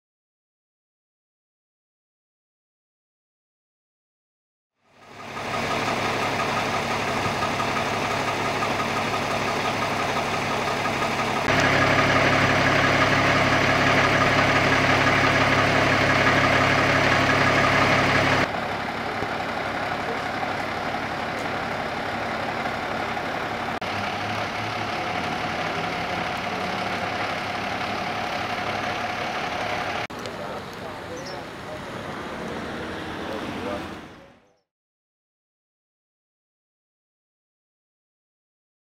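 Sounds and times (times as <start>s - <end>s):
truck engine idling: 4.9s - 34.5s.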